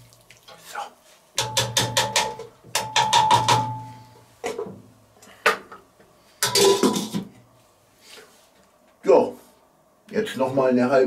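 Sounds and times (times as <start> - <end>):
wooden spoon knocking metal pot: 1.4 - 4.6.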